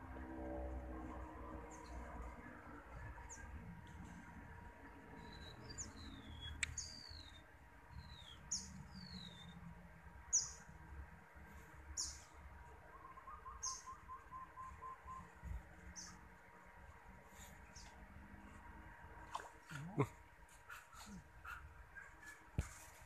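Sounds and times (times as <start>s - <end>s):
birds chirping: 11.9s - 16.3s.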